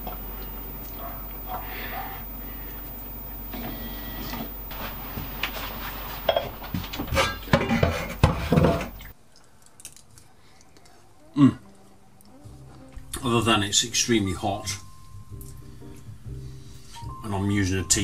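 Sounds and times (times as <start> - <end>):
saucepan and utensils clattering: 6.2 - 9.1.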